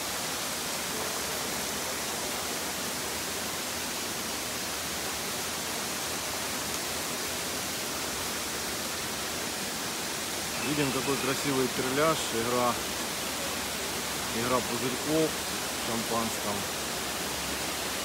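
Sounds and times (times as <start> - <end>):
running water rushing: 0.0 - 18.0.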